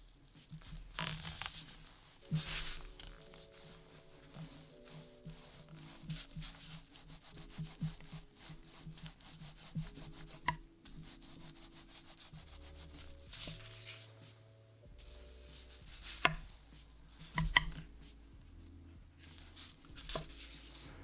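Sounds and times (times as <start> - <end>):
dowel rubbing over dough: 0.6 - 14.4, 19.2 - 21.0
wood-on-wood knocks: 17.3 - 17.9.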